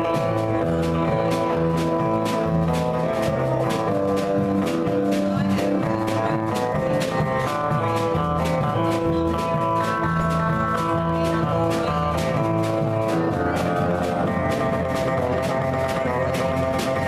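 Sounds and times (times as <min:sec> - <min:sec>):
country band instrumental: 0:00.0 - 0:17.0.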